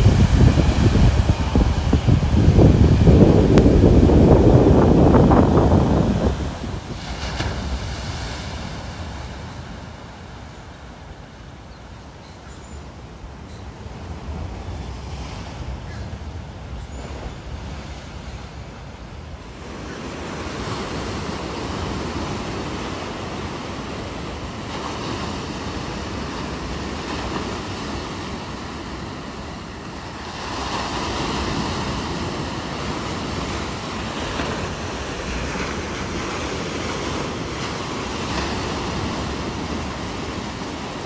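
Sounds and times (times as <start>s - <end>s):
wind buffeting microphone: 0.0s - 11.4s
ocean waves breaking: 0.0s - 11.6s, 13.8s - 41.0s.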